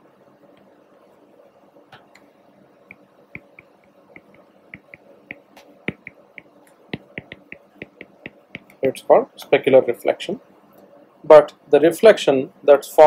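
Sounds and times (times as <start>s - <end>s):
stylus tapping on glass screen: 2.9s - 8.8s.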